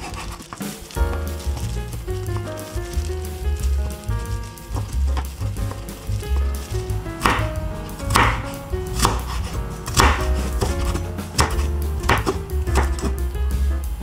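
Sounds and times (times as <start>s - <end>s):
knife chopping on wooden board: 5.7s - 13.1s.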